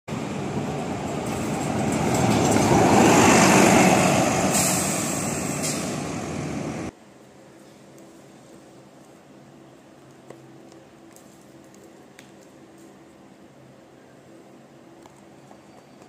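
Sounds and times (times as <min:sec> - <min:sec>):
diesel bus driving past: 0:00.1 - 0:06.9.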